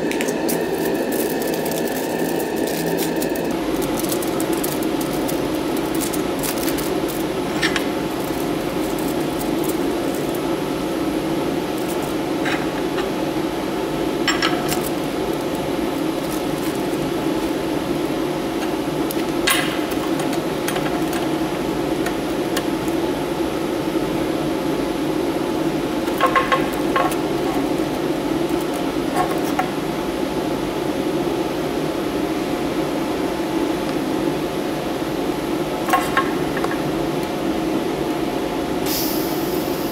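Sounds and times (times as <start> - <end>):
foil crinkling: 0.0 - 13.0, 14.5 - 23.1, 25.9 - 29.7
steady machine hum: 0.0 - 39.9.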